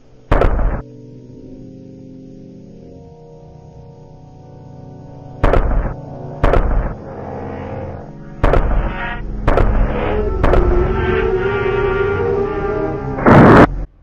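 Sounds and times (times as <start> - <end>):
background music: 0.0 - 14.0
tank cannon firing: 0.3 - 0.8, 5.4 - 7.0, 8.4 - 10.6.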